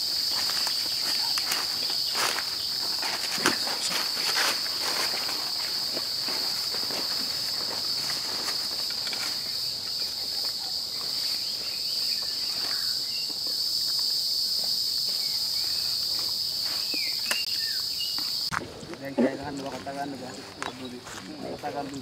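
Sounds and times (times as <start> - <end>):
high-pitched insect chorus: 0.0 - 22.0
rustles and crackles: 0.1 - 11.4.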